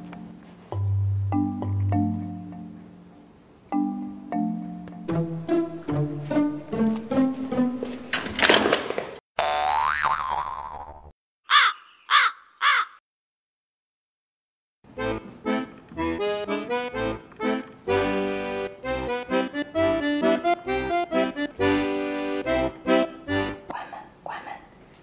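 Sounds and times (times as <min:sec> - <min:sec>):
background music with steady beat: 0:03.8 - 0:08.1.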